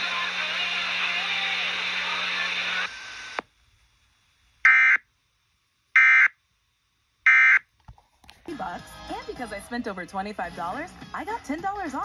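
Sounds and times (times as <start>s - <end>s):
broadcast audio: 0.0s - 3.4s, 8.3s - 12.0s.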